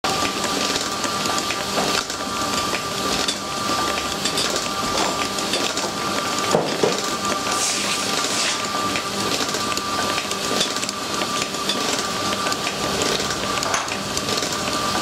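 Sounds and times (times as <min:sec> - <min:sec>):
mixer blade swishing and scraping: 0:07.3 - 0:08.9.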